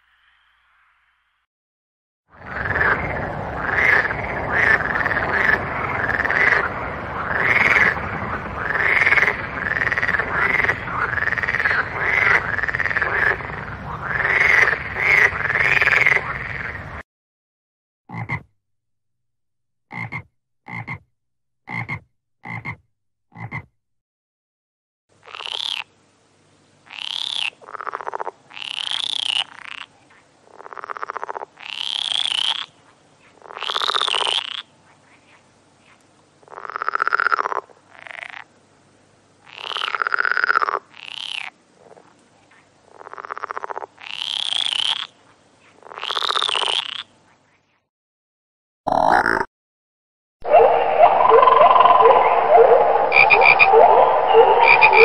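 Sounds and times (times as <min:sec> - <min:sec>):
frogs croaking: 0:02.4 - 0:16.9, 0:25.2 - 0:25.9, 0:26.8 - 0:38.6, 0:39.4 - 0:45.2, 0:45.8 - 0:47.7, 0:48.9 - 0:49.5, 0:50.4 - 0:55.0.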